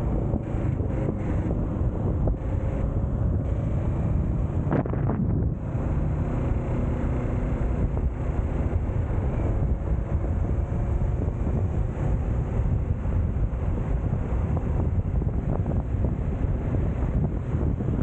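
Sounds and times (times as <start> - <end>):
motorcycle engine running: 0.0 - 18.0
wind buffeting microphone: 0.0 - 18.0.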